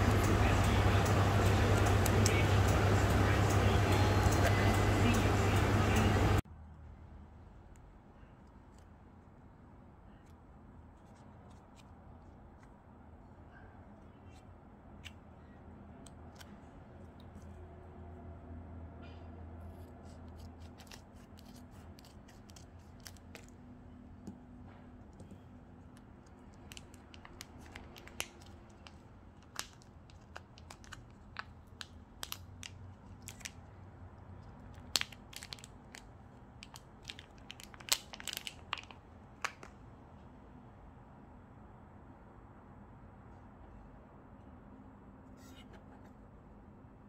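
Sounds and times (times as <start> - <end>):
scissors snipping plastic: 19.8 - 23.6
plastic film crinkling: 20.2 - 23.6, 26.4 - 33.6, 34.7 - 39.7.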